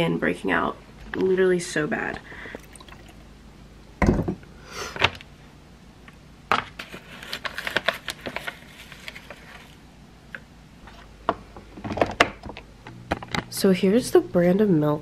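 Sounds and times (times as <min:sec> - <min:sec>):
paper bag rustling: 0:06.7 - 0:09.8.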